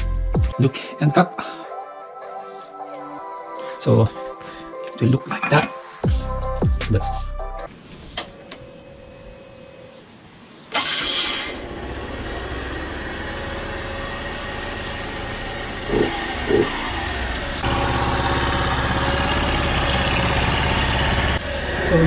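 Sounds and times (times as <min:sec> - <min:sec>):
motorcycle engine running: 0:11.6 - 0:22.0.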